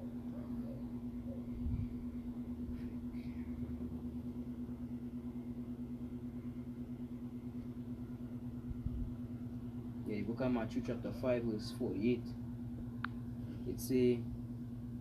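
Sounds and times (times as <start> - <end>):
low fluttering rumble: 0.0 - 10.2
steady mechanical hum: 0.0 - 15.0.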